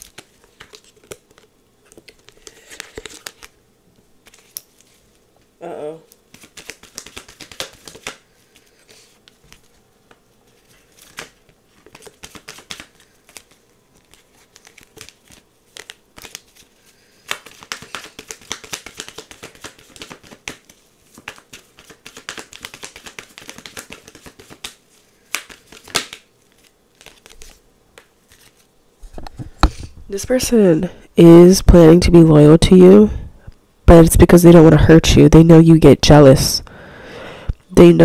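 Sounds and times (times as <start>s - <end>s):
cards being shuffled: 0.0s - 3.6s, 4.2s - 5.2s, 6.1s - 30.0s.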